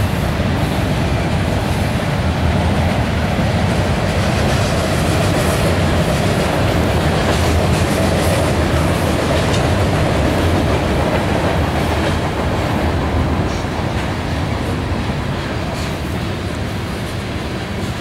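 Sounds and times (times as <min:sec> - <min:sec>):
train wheels rumbling on rails: 0:00.0 - 0:18.0
wheels clicking over rail joints: 0:03.6 - 0:14.2.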